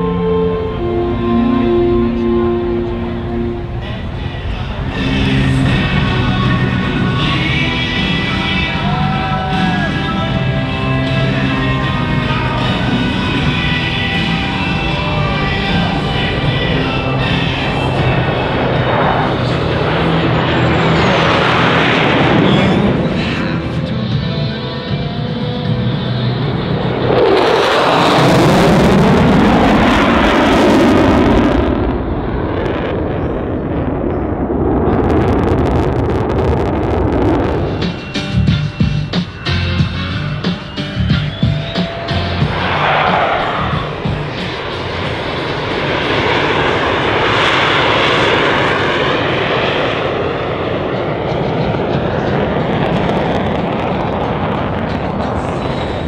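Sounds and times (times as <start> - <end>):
jet engine roar: 0.0 - 56.0.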